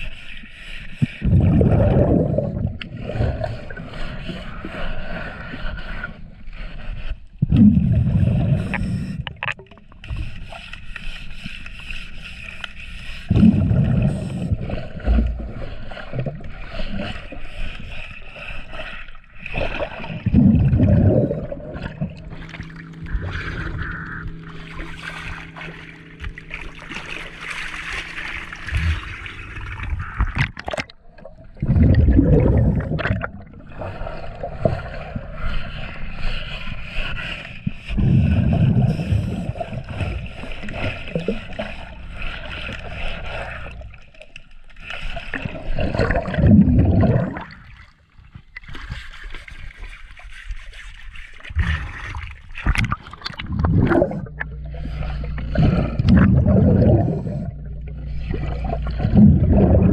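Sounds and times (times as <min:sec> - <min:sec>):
diver exhaling bubbles underwater: 0:01.2 - 0:03.9, 0:07.4 - 0:09.8, 0:13.3 - 0:17.1, 0:19.5 - 0:35.4, 0:37.9 - 0:42.9, 0:45.4 - 0:47.9, 0:51.6 - 0:59.9
water splashing at surface: 0:19.7 - 0:31.0.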